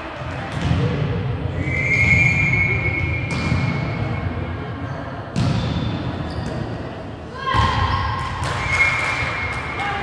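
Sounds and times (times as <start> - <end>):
referee's whistle: 1.6 - 3.5.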